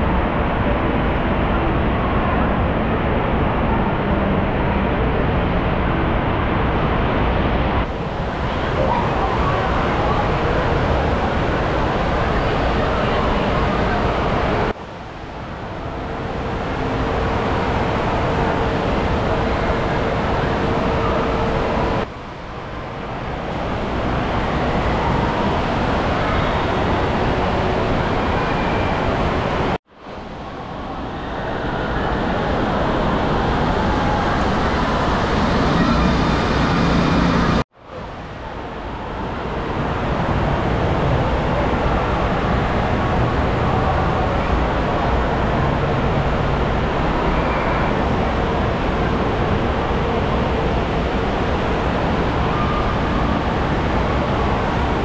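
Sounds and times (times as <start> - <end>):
distant echoing voices: 15.4 - 55.0.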